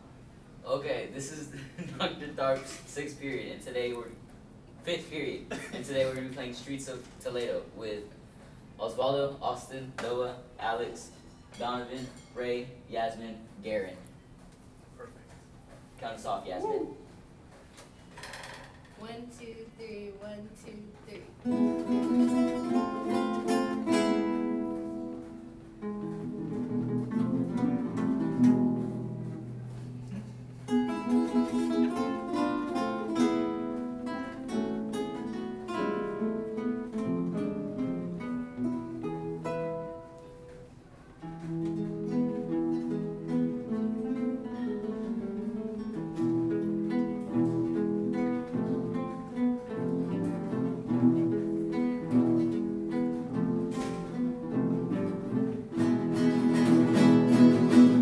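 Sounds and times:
acoustic guitar ensemble playing: 0:19.1 - 0:58.0.

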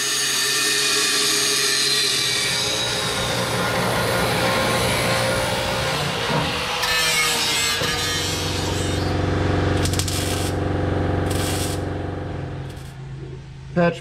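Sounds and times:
welding machine hum: 0:00.0 - 0:13.2
welder crackling hiss: 0:09.8 - 0:10.6, 0:11.2 - 0:11.9.

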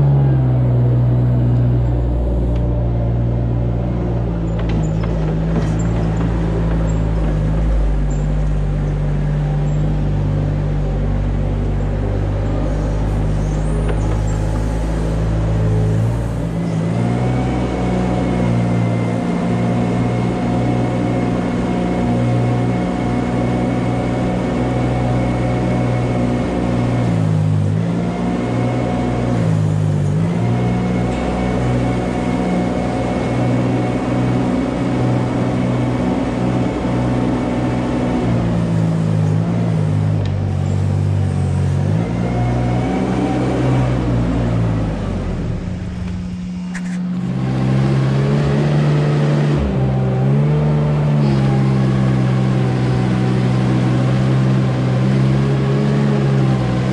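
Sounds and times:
loader engine running: 0:00.0 - 0:56.9
drive whine: 0:28.8 - 0:54.8.

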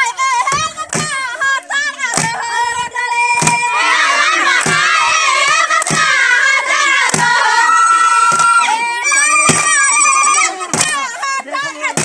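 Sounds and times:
women singing: 0:00.0 - 0:12.0
sharp hand claps: 0:04.5 - 0:04.8, 0:05.4 - 0:06.2, 0:07.0 - 0:07.3.

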